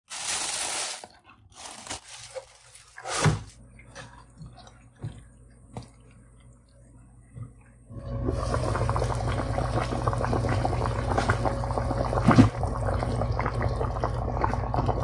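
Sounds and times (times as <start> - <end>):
plastic bag crinkling: 0.1 - 3.5.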